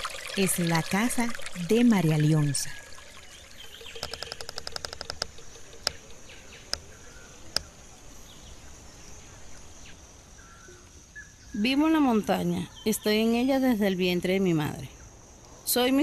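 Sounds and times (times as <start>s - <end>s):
insects buzzing: 0.0s - 16.0s
rapid clicks: 4.0s - 7.7s.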